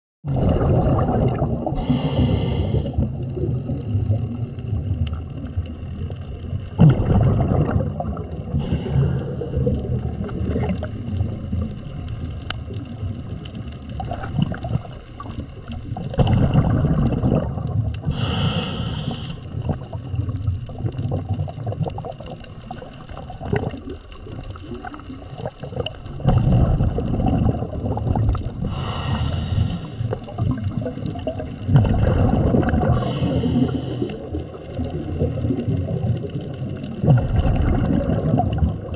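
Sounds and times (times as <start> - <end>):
bubbling exhalations underwater: 0.2 - 12.1, 12.7 - 38.9
hissing regulator inhalations: 1.8 - 3.1, 8.5 - 9.8, 18.0 - 19.5, 28.6 - 30.3, 32.9 - 34.4.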